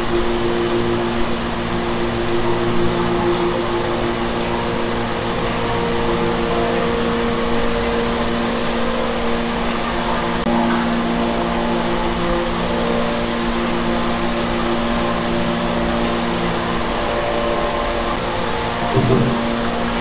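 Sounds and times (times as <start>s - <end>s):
machines humming: 0.0s - 20.0s.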